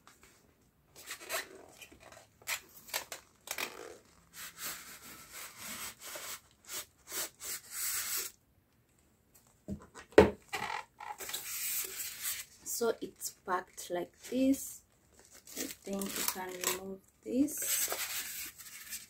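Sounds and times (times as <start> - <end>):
packaging rustling: 15.1 - 16.8.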